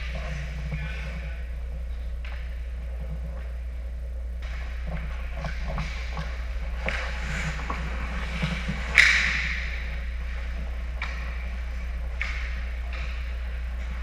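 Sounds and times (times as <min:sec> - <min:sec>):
sticks and puck clacking: 0:02.1 - 0:03.6, 0:04.4 - 0:14.0
skate blades scraping ice: 0:05.5 - 0:14.0.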